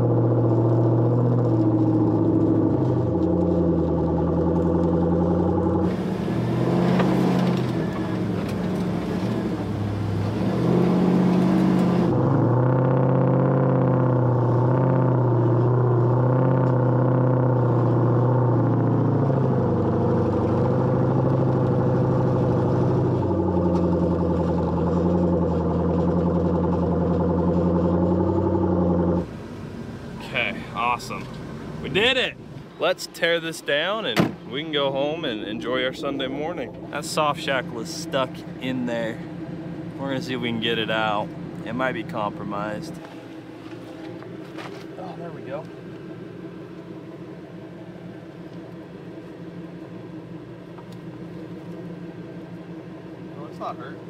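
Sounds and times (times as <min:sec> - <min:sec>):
vehicle engine under load: 0:00.0 - 0:54.0.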